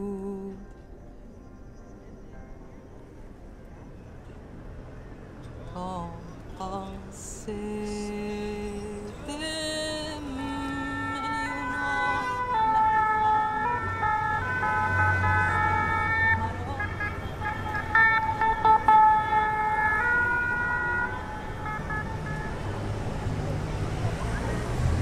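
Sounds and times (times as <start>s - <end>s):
melody of long held notes: 7.5s - 25.0s.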